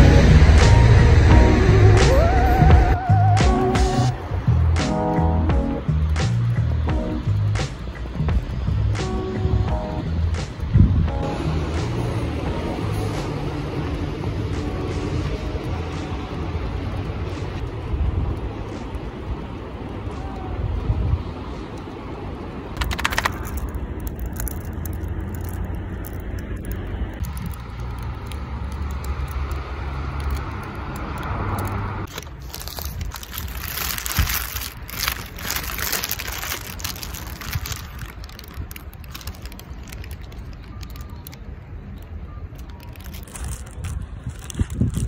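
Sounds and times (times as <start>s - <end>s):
wind rumbling on microphone: 0.0s - 45.0s
paper and plastic wrapping crinkling: 22.8s - 45.0s.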